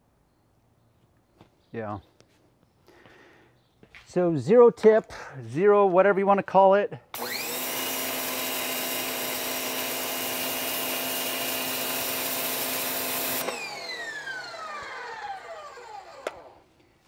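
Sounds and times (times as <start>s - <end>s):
motor winding down whine: 7.2s - 16.7s
pressure washer motor humming: 7.2s - 16.7s.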